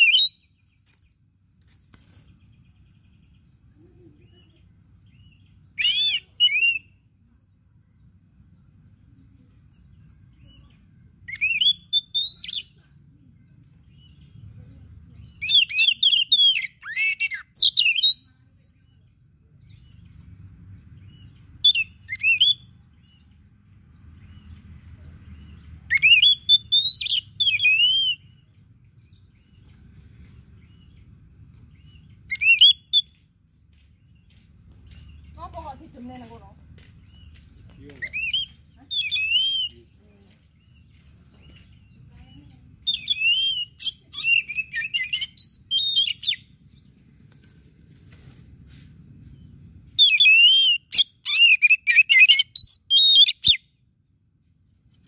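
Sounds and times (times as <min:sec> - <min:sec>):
bird singing whistled phrases: 0:00.0 - 0:00.6, 0:03.7 - 0:07.0, 0:11.3 - 0:12.8, 0:15.2 - 0:18.4, 0:21.0 - 0:23.2, 0:25.5 - 0:28.4, 0:31.9 - 0:33.2, 0:37.1 - 0:42.0, 0:42.8 - 0:48.4, 0:49.2 - 0:53.8.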